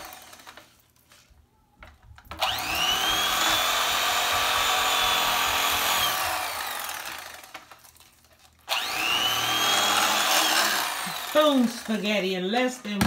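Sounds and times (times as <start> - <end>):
electric knife motor whining: 0.0 - 0.7, 2.3 - 7.9, 8.6 - 12.1.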